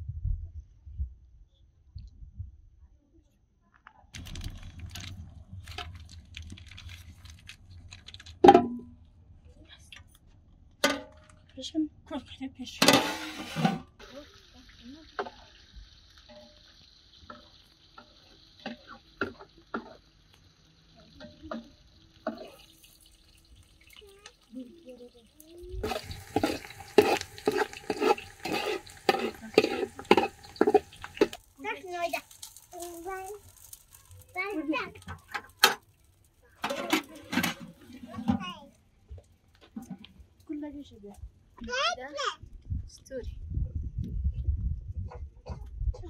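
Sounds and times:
wood fire crackling: 4.2 - 8.4, 14.0 - 42.1
metal pot and lid clanking: 12.8 - 13.9, 25.8 - 31.4, 36.6 - 38.4
onions sizzling in oil: 13.0 - 38.2.

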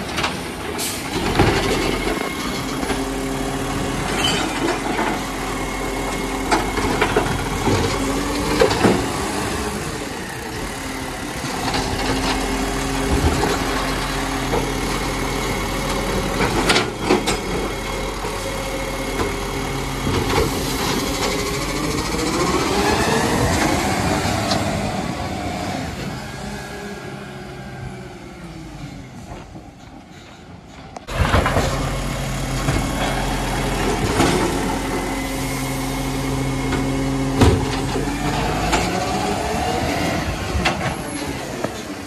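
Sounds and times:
garbage truck engine running: 0.0 - 42.0
hydraulic arm lifting bin: 28.2 - 42.0.

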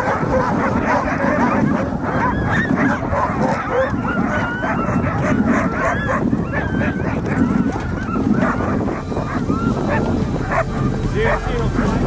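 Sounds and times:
dogs barking and yipping: 0.0 - 12.0.

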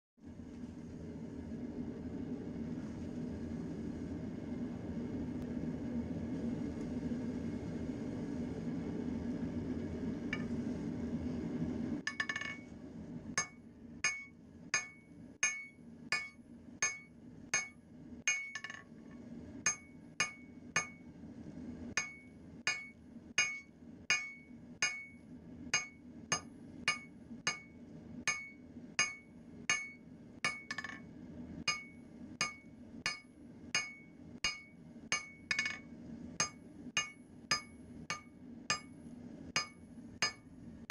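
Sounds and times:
hammer striking metal on anvil: 12.1 - 12.6, 13.4 - 18.8, 19.6 - 21.0, 22.0 - 31.0, 31.7 - 39.0, 39.6 - 40.5.

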